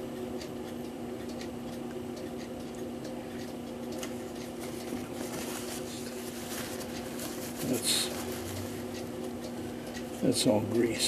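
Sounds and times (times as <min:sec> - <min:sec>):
steady low hum: 0:00.0 - 0:11.0
paper towel rubbing: 0:04.6 - 0:08.9.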